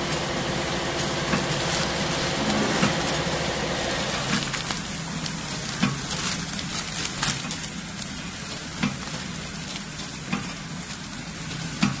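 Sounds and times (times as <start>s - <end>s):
packing machine hissing: 0.0s - 12.0s
plastic film crinkling: 1.0s - 11.6s
machine clacking: 1.3s - 4.4s.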